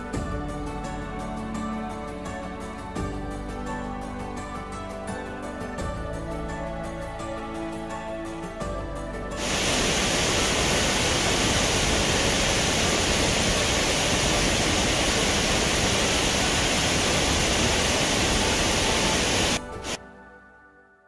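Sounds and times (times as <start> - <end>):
background music: 0.0 - 21.0
waterfall rushing: 9.4 - 20.0.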